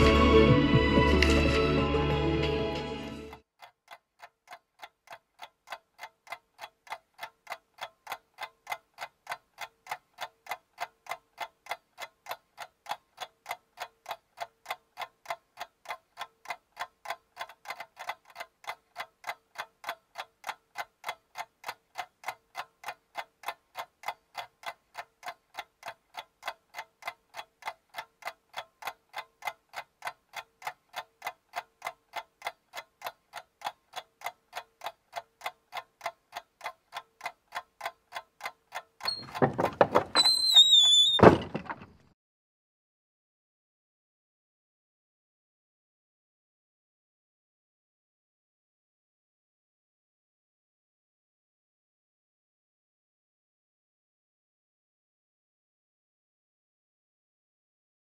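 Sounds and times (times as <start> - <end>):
clock ticking: 3.3 - 40.8.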